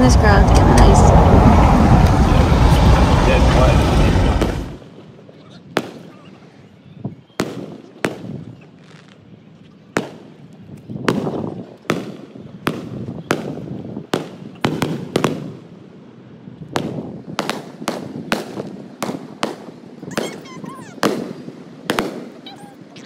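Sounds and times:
fireworks bursting: 0:00.0 - 0:04.8, 0:07.4 - 0:08.5, 0:11.1 - 0:15.6, 0:16.8 - 0:23.0.

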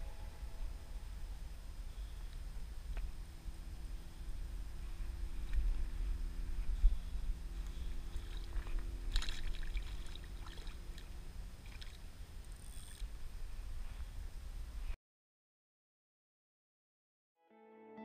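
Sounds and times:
wind buffeting microphone: 0:00.0 - 0:11.7
faint steady hum: 0:00.0 - 0:15.0.

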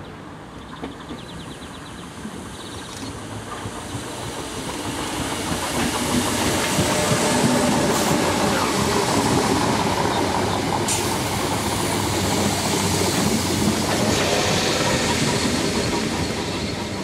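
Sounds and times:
train wheel and rail noise: 0:00.0 - 0:17.0.

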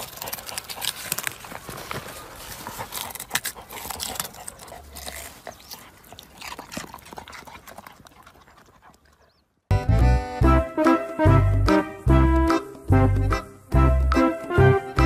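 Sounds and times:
dog rooting through soil and plants: 0:00.0 - 0:09.7.

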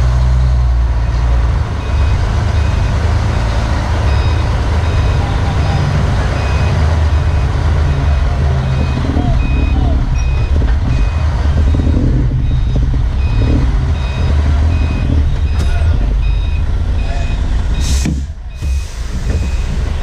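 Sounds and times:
diesel engine running: 0:00.0 - 0:20.0
warning beeper short beeps: 0:04.0 - 0:18.9.

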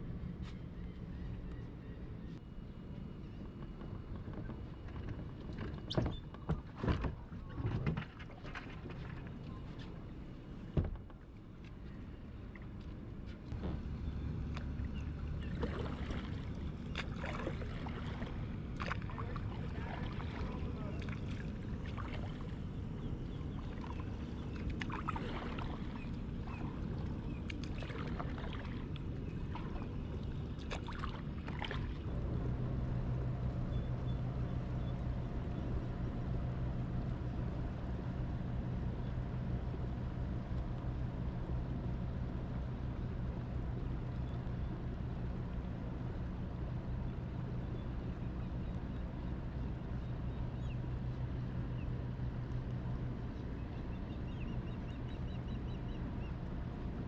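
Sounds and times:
water and wind noise: 0:00.0 - 0:57.0
short noises over water: 0:13.4 - 0:57.0
boat motor humming: 0:13.5 - 0:57.0.

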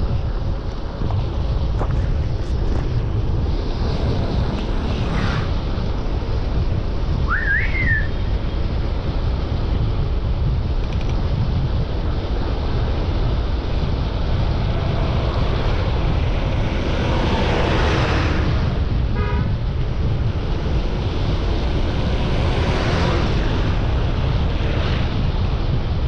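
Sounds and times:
passing traffic: 0:00.0 - 0:26.0
wind rumble on microphone: 0:00.0 - 0:26.0
vehicle horn toot: 0:19.1 - 0:19.6.

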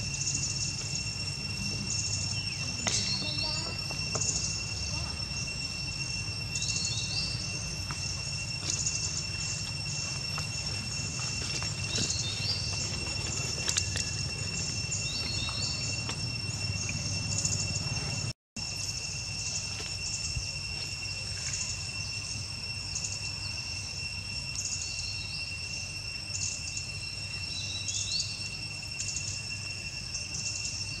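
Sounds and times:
insects droning: 0:00.0 - 0:31.0
bird chirps: 0:01.8 - 0:05.5, 0:08.6 - 0:18.2.

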